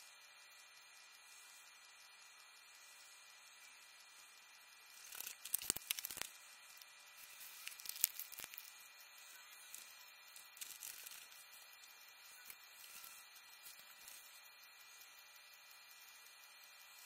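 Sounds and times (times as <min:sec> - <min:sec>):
low steady hiss: 0:00.0 - 0:17.0
crackling handling noise: 0:05.0 - 0:08.8, 0:09.6 - 0:11.5.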